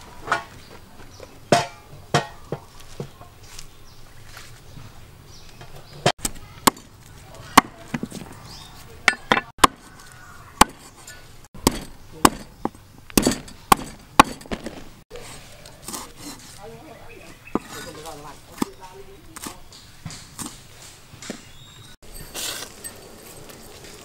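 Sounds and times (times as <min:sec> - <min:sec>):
cleaver chopping on wooden board: 0:06.2 - 0:06.9, 0:09.1 - 0:10.0, 0:10.6 - 0:10.9, 0:11.6 - 0:14.8.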